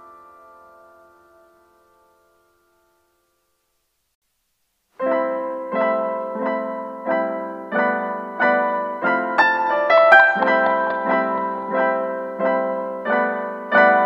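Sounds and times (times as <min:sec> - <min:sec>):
piano chords: 0:05.0 - 0:14.0.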